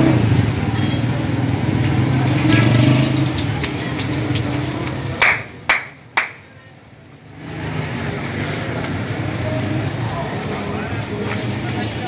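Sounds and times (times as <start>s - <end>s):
busy street food stall: 0.0s - 12.0s.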